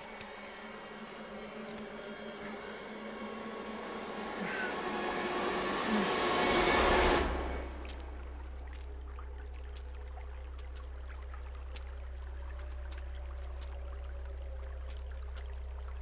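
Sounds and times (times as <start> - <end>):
low drone with held tones: 0.0 - 8.6.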